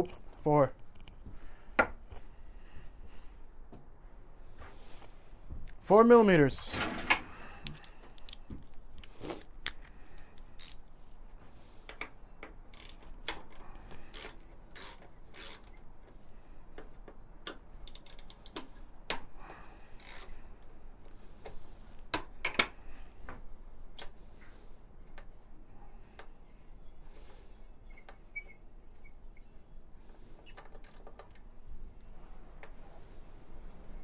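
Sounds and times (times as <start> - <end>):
hand ratchet clicking: 10.6 - 10.8, 12.7 - 15.9, 16.8 - 19.3, 20.0 - 20.3.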